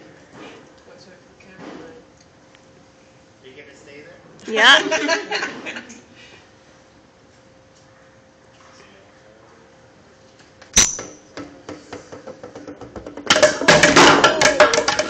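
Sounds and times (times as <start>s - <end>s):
bowling pins clattering: 11.0s - 15.0s
bowling ball rolling: 11.4s - 15.0s
bowling ball thud on wood floor: 11.4s - 15.0s.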